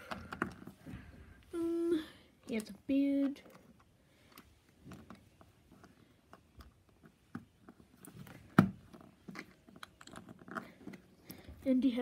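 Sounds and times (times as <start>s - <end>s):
plastic pieces clicking: 2.5s - 11.4s.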